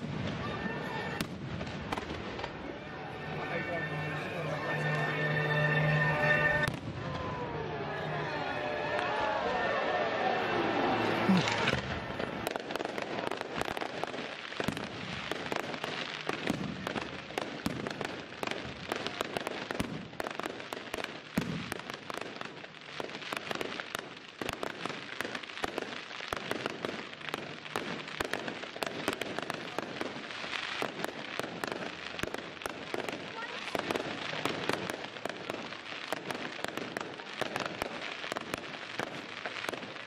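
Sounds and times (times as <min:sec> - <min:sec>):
firework pops and bangs: 0:00.0 - 0:02.7, 0:11.2 - 0:40.0
fireworks crackling: 0:00.0 - 0:40.0.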